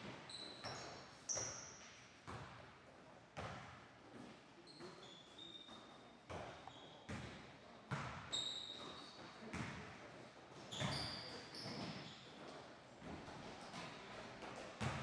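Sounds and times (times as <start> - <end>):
sneakers squeaking on wood: 0.3 - 1.8, 4.7 - 7.0, 7.9 - 9.7, 10.6 - 12.3
basketball bouncing on hardwood floor: 7.1 - 8.2, 9.5 - 9.8, 14.8 - 15.0.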